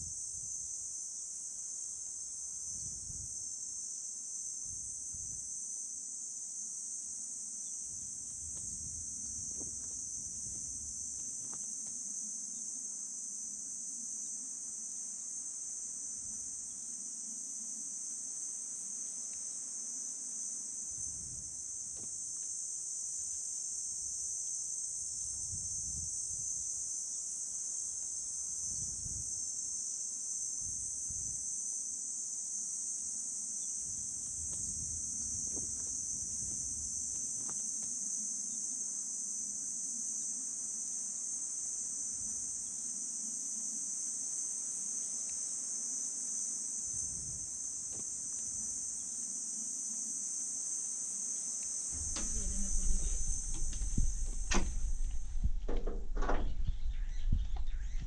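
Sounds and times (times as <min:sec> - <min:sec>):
insects trilling: 0:00.0 - 0:58.0
soft low rumbles: 0:52.0 - 0:58.0.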